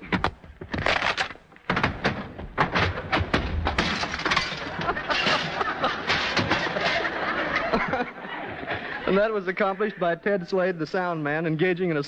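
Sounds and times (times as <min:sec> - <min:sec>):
chairs thrown about: 0:00.0 - 0:07.6
baskets breaking: 0:02.6 - 0:07.1
glass smashing: 0:03.6 - 0:07.0.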